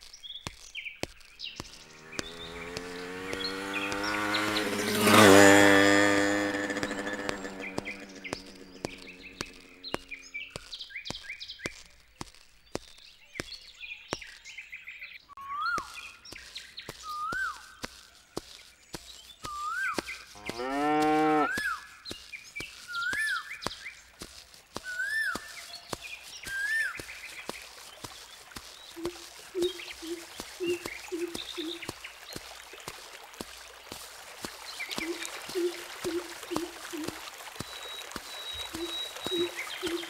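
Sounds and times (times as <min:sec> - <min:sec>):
sharp clicks: 0:00.0 - 0:05.4
bird chirps: 0:00.0 - 0:20.7, 0:21.3 - 0:32.4, 0:34.6 - 0:40.0
cow mooing: 0:20.4 - 0:21.5
bird whistling: 0:24.8 - 0:25.5, 0:29.0 - 0:31.9, 0:34.9 - 0:40.0.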